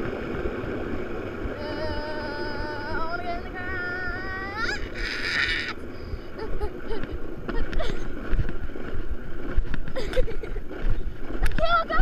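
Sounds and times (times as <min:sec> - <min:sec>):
wind buffeting microphone: 0:00.0 - 0:12.0
person screaming: 0:04.6 - 0:05.8.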